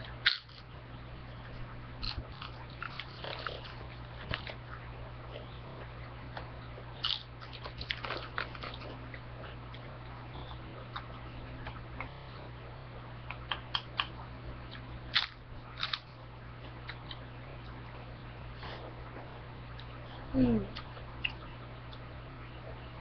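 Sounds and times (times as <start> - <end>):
chips crunching: 0.0 - 0.6, 2.0 - 4.7, 7.0 - 9.0, 15.1 - 16.1
steady low hum: 0.0 - 23.0.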